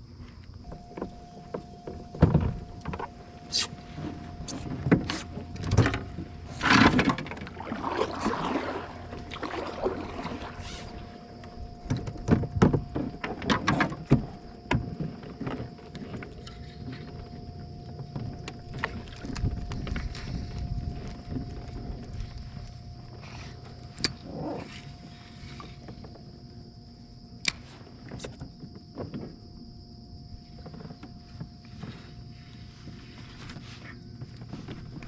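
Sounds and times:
faint steady tone: 0.0 - 35.0
gear knocking kayak hull: 0.6 - 24.2.

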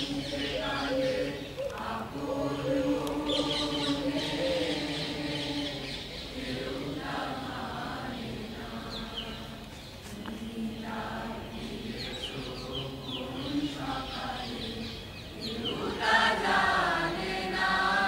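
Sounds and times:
birds chirping: 0.0 - 18.0
children singing in unison: 0.0 - 18.0.

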